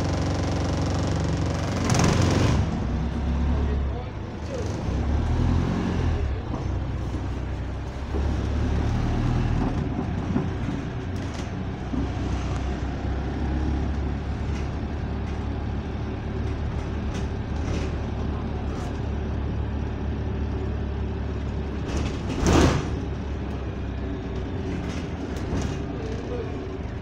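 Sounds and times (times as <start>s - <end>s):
bus engine droning: 0.0s - 27.0s
bus interior rattling: 0.0s - 27.0s.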